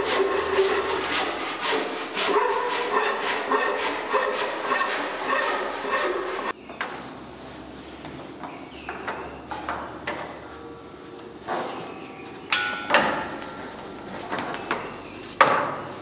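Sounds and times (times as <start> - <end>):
hand saw cutting wood: 0.0 - 6.6.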